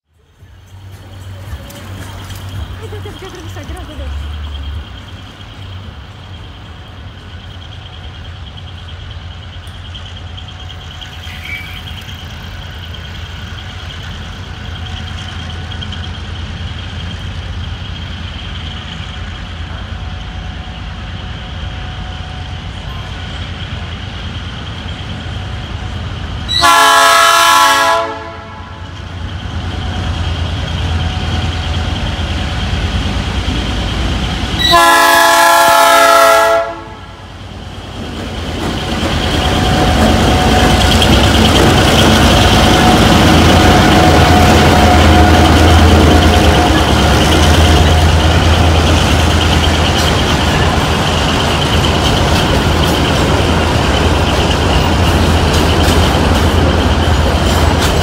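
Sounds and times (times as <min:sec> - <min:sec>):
locomotive engine rumble: 0:00.1 - 0:58.0
train air horn blasts: 0:26.5 - 0:28.9, 0:34.6 - 0:37.2.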